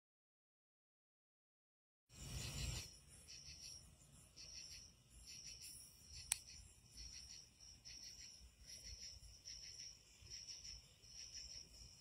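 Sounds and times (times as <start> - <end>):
crickets chirping: 2.1 - 12.0
sharp click: 5.6 - 6.5.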